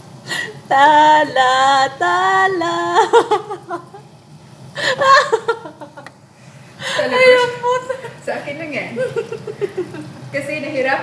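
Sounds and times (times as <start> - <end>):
laughter: 3.0 - 4.0, 4.8 - 6.1, 9.0 - 10.2.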